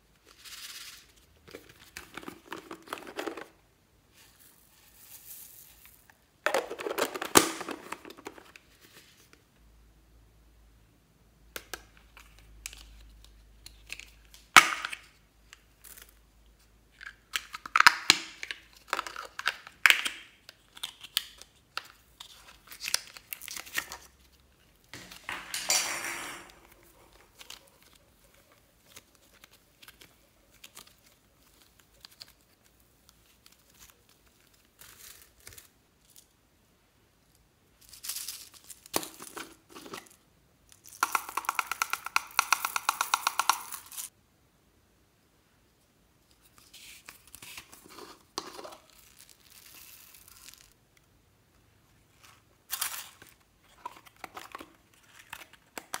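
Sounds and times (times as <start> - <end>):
plastic containers crinkling: 1.5 - 3.6, 5.7 - 8.6, 17.0 - 24.3, 52.7 - 56.0.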